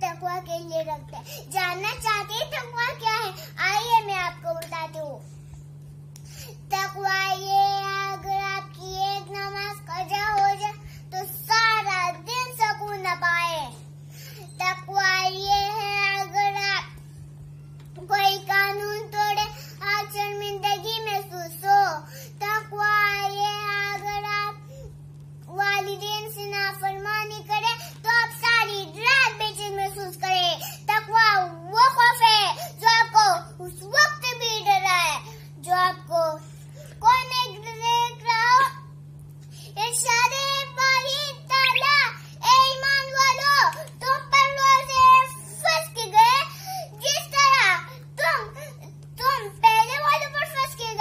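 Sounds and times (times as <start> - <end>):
steady low hum: 0.0 - 51.0
girl's sing-song recitation: 6.7 - 13.8, 14.6 - 24.7, 25.5 - 38.9, 39.8 - 51.0
girl singing: 39.8 - 48.6.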